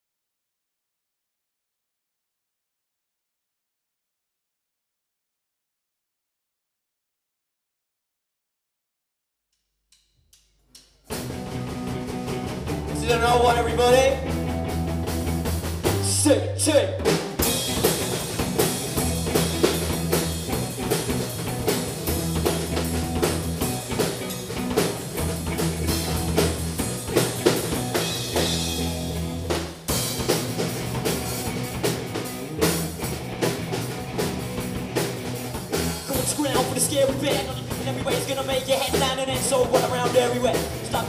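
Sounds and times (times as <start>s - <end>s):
drum kit with cymbals: 10.8s - 41.0s
bass guitar: 11.1s - 41.0s
electric guitars: 11.1s - 41.0s.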